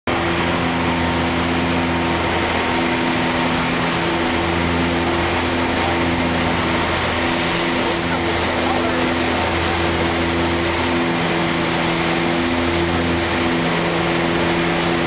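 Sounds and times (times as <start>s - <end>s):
low propeller hum: 0.1s - 15.0s
turboprop engine drone: 0.1s - 15.0s.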